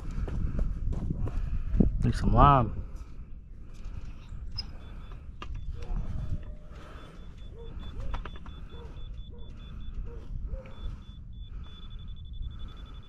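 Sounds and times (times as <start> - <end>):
laser receiver beeping: 4.5 - 13.0.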